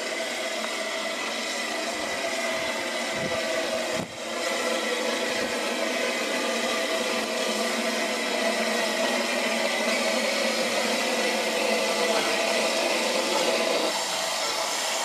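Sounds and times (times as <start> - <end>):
steam locomotive hissing: 0.0 - 15.0.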